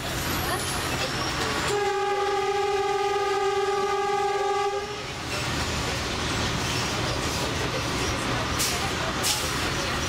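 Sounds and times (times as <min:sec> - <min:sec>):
low rumble of train running: 0:00.0 - 0:10.0
train horn blast: 0:01.6 - 0:05.1.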